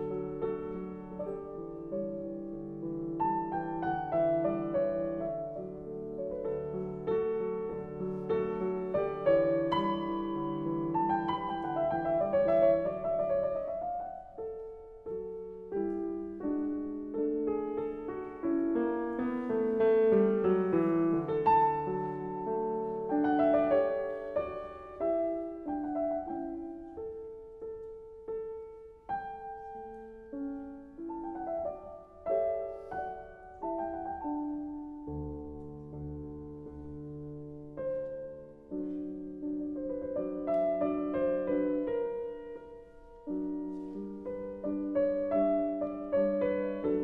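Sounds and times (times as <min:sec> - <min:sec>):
calm piano melody: 0:00.0 - 0:47.0.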